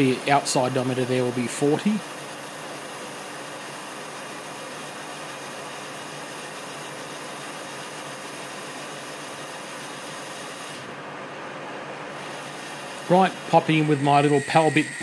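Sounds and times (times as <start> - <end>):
cutting tool hiss: 0.0 - 10.9, 12.2 - 15.0
lathe running: 12.1 - 15.0.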